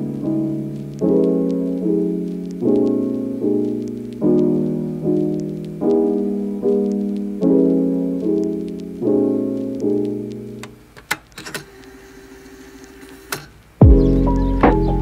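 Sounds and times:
slow piano chords: 0.0 - 11.0, 13.8 - 15.0
sharp clicks: 9.6 - 12.0.

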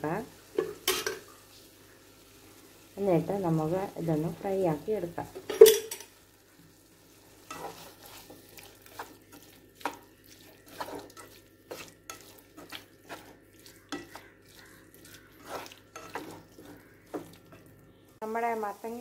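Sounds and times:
oil sizzling: 0.0 - 19.0
spatula scraping frying pan: 7.4 - 17.8.

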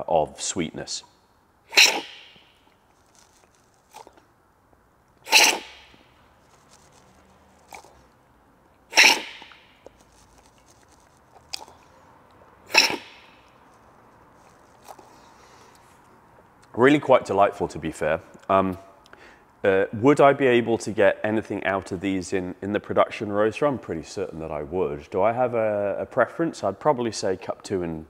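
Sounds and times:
loud coffee slurps: 1.7 - 2.5, 3.1 - 4.2, 5.2 - 8.1, 8.9 - 11.9, 12.7 - 13.5.

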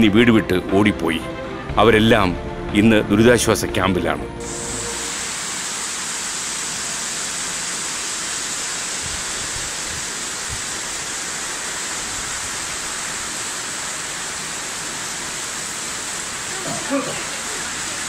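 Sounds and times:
heavy rain on floodwater: 4.4 - 18.0.

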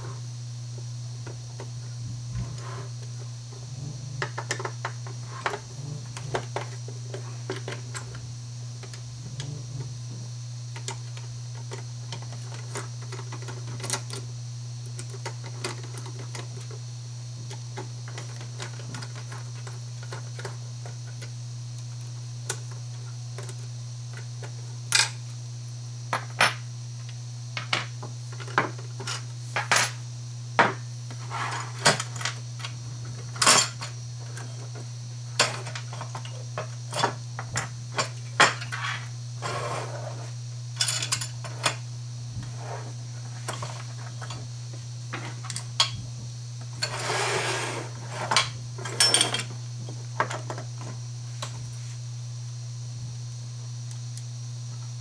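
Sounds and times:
sliding scrape: 39.4 - 40.3, 46.8 - 48.3.

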